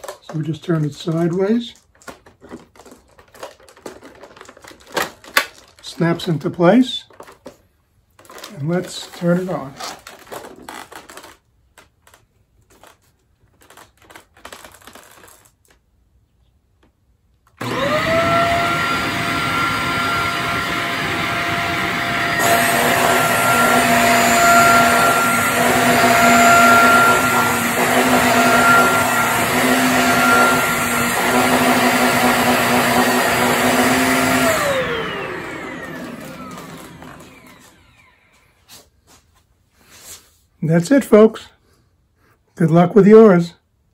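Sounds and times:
vacuum cleaner motor whine: 17.6 - 38.5.

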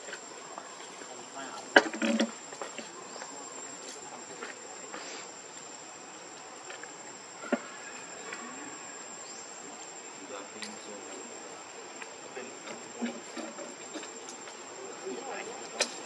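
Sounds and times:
insects trilling: 0.0 - 16.0
outdoor ambience: 0.0 - 16.0.

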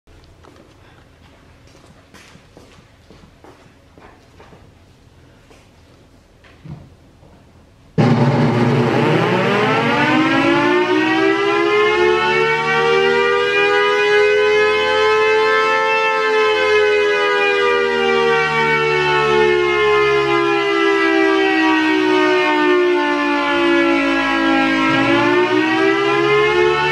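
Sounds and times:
siren winding up to a wail: 8.0 - 26.9.

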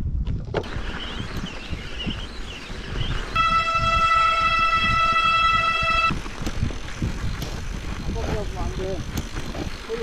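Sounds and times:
wind noise: 0.0 - 10.0
loud horn steady note: 3.4 - 6.2.

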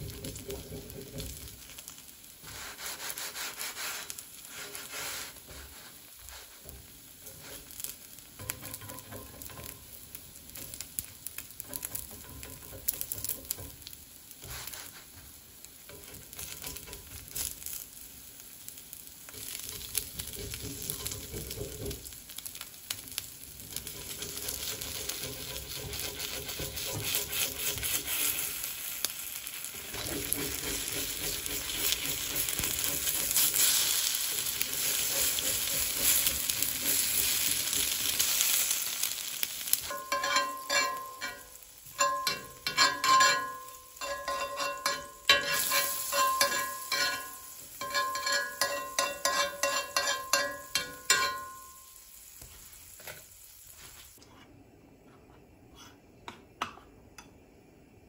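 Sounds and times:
food sizzling in skillet: 0.0 - 54.2
utensil knocking against pan: 11.6 - 13.8, 39.9 - 51.7.

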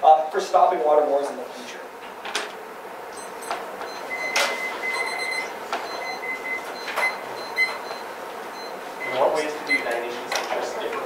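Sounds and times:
phone timers beeping: 3.2 - 10.0.

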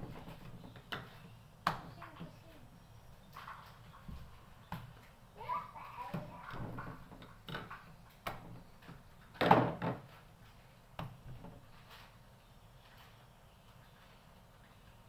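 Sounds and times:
light knocks and bumps: 6.0 - 10.3.

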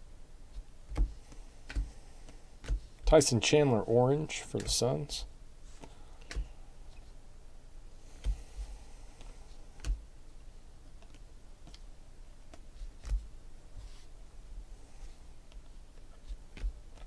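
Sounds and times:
trading cards clicking and tapping: 0.9 - 3.1, 4.5 - 5.0, 5.8 - 6.5, 9.2 - 10.0.

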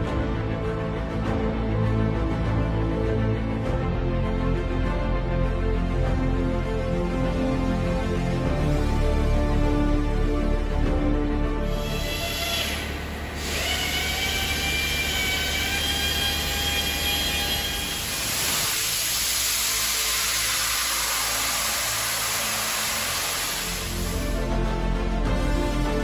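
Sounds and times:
water jet hissing and whining: 11.6 - 24.5.

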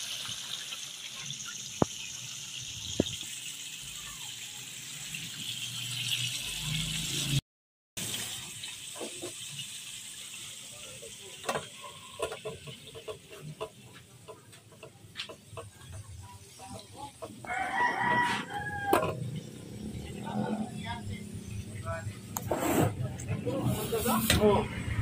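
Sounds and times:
rooster crowing: 17.2 - 19.3.

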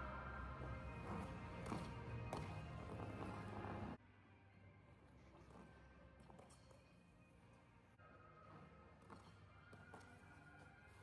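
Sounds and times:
faint music: 0.0 - 11.0.

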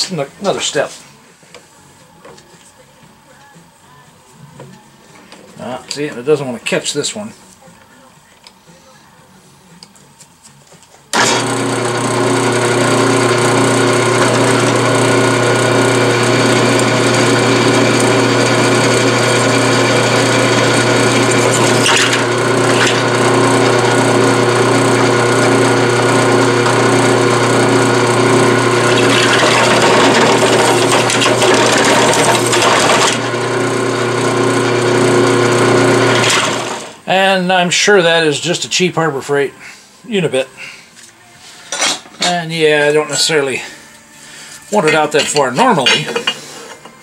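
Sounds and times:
drill press motor running: 11.1 - 37.0.

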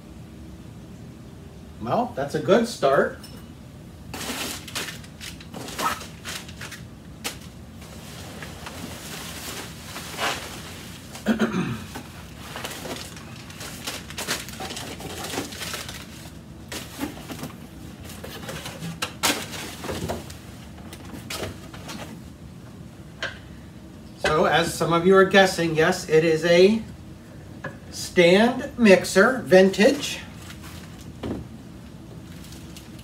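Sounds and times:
bubble wrap and plastic rustling: 4.1 - 22.3, 29.7 - 31.3, 32.1 - 33.0.

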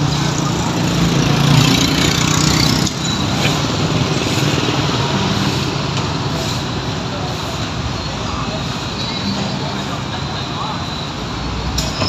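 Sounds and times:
engine running close by: 0.0 - 7.5
street and market noise: 0.0 - 12.0.

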